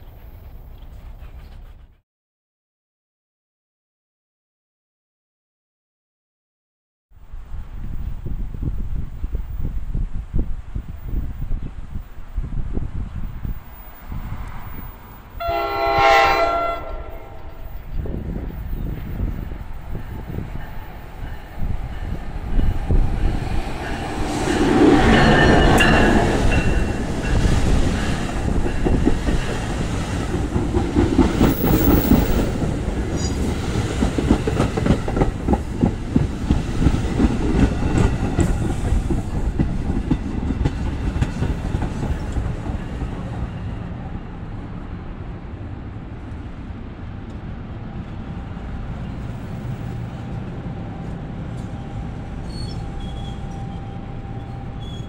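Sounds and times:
locomotive rushing past: 10.7s - 55.0s
train wheels clacking over rails: 19.0s - 43.6s.

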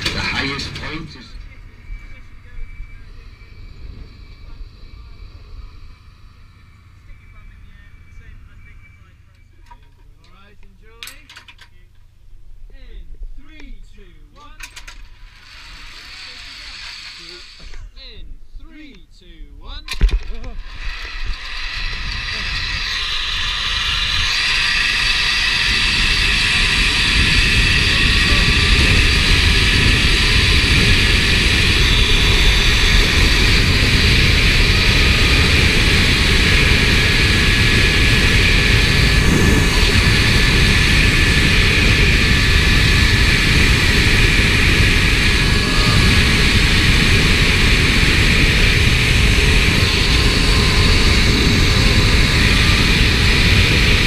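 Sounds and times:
wind buffeting microphone: 0.0s - 8.7s, 20.6s - 54.0s
pulleys whining on cable: 0.0s - 9.8s, 14.4s - 18.0s, 20.0s - 54.0s.

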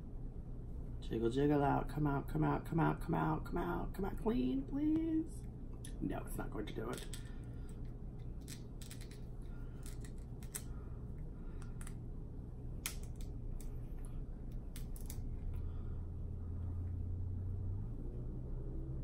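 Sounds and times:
steady low hum: 0.0s - 19.0s
crab shell cracking: 8.4s - 10.7s, 12.8s - 13.7s.

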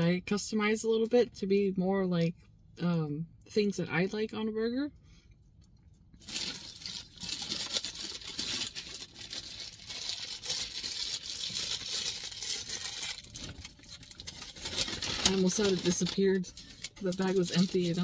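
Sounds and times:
paper bag and wrappers rustling: 6.2s - 18.0s.

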